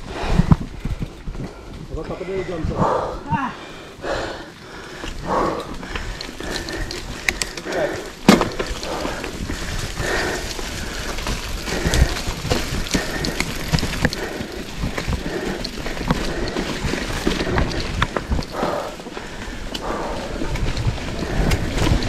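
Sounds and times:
bike tyres on dirt trail: 0:00.0 - 0:22.0
wind buffeting microphone: 0:00.0 - 0:22.0
bike knocking and rattling: 0:03.3 - 0:22.0.

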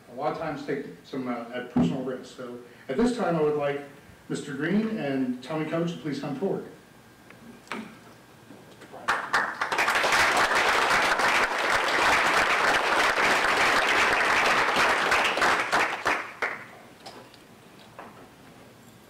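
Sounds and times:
audience applauding: 0:09.0 - 0:16.7.

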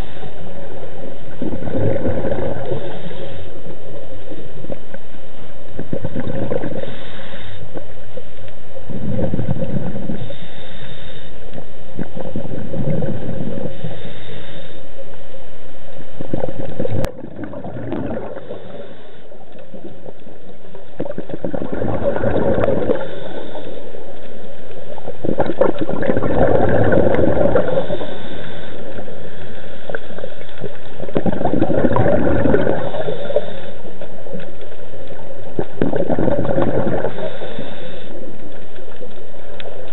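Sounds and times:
diver's regulator breathing underwater: 0:00.0 - 0:04.9, 0:05.8 - 0:15.3, 0:16.2 - 0:39.9
exhaled bubbles gurgling: 0:00.0 - 0:10.9, 0:11.9 - 0:14.7, 0:16.0 - 0:39.9.

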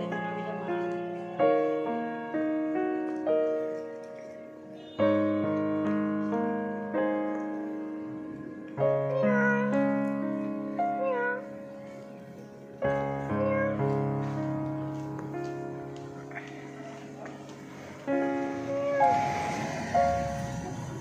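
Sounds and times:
piano music: 0:00.0 - 0:21.0
cat meowing: 0:09.1 - 0:09.8, 0:11.0 - 0:11.4, 0:13.4 - 0:13.9, 0:18.6 - 0:19.5.

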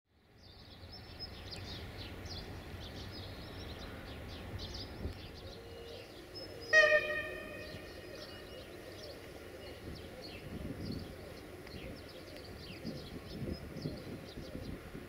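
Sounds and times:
birds chirping: 0:00.2 - 0:15.0
train horn blast: 0:05.6 - 0:08.5.

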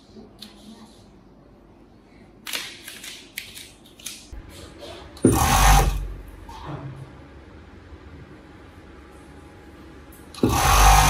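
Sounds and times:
sewing machine running: 0:05.3 - 0:06.1, 0:10.4 - 0:11.0.

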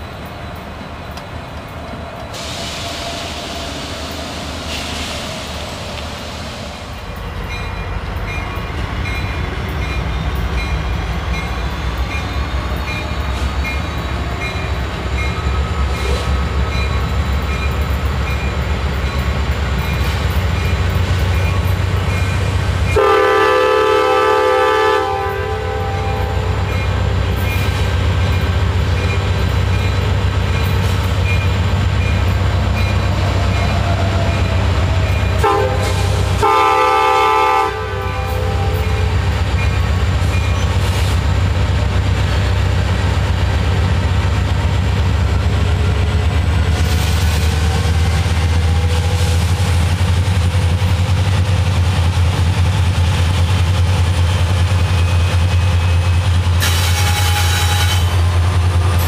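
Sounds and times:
diesel locomotive engine drone: 0:00.0 - 0:59.0
train horn blasts: 0:22.9 - 0:26.7, 0:35.4 - 0:39.2, 0:56.6 - 0:58.3.

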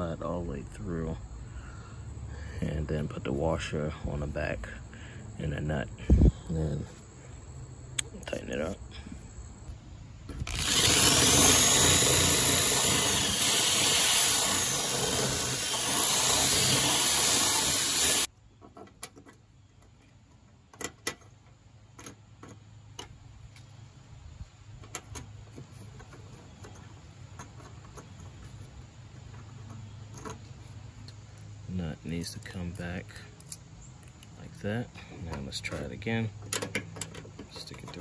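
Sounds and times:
power drill boring through plastic: 0:10.3 - 0:18.3.

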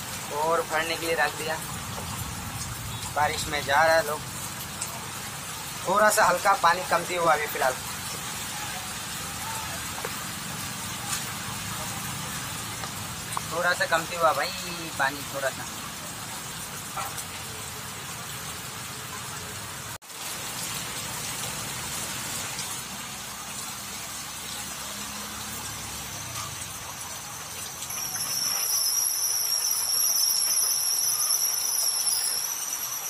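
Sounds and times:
heavy rain splashing into water: 0:00.0 - 0:33.0
high-pitched whine: 0:24.9 - 0:33.0.

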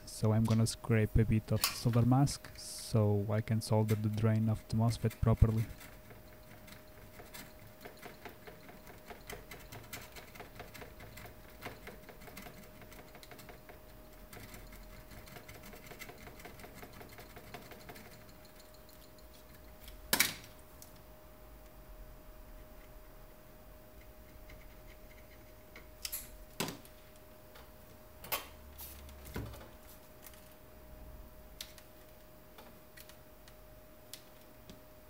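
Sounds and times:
tool scratching circuit board: 0:03.5 - 0:19.3, 0:24.0 - 0:25.7.

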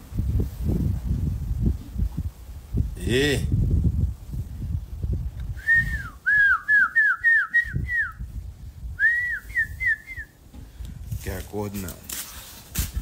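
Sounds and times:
person whistling falling notes: 0:05.6 - 0:08.2, 0:09.0 - 0:10.3.

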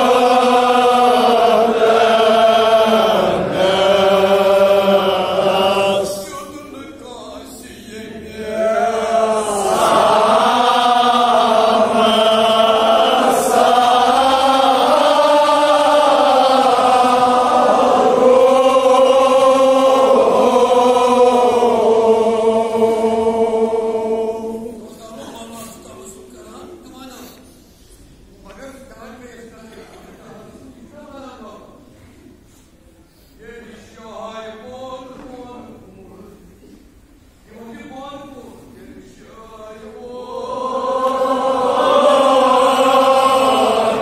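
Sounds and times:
men chanting unaccompanied: 0:00.0 - 0:26.7, 0:37.6 - 0:44.0.

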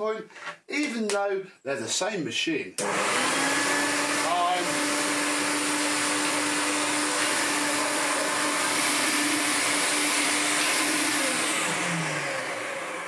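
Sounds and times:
vacuum cleaner running: 0:02.8 - 0:13.0.

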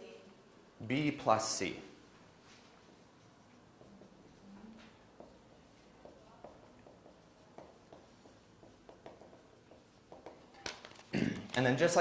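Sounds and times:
pen scratching and tapping: 0:02.8 - 0:11.7.

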